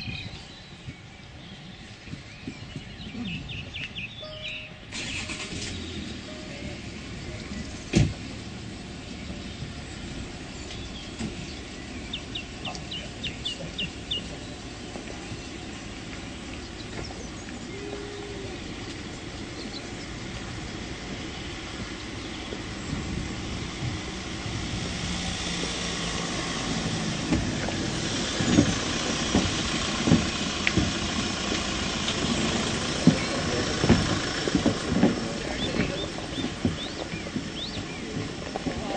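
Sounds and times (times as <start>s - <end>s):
footsteps on tarmac: 0.0s - 38.9s
outdoor background noise: 0.0s - 38.9s
high ticks: 27.6s - 37.8s.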